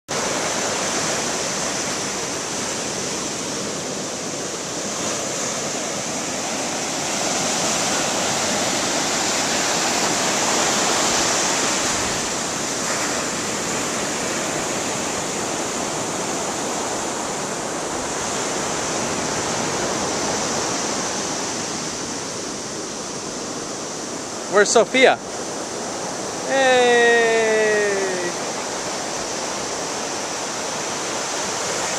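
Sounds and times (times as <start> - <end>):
ocean surf on sandy beach: 0.1 - 31.9.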